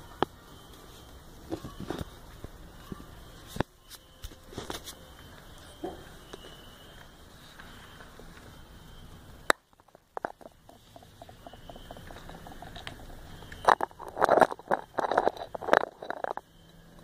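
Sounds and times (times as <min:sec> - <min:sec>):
small ticks: 0:09.5 - 0:17.0.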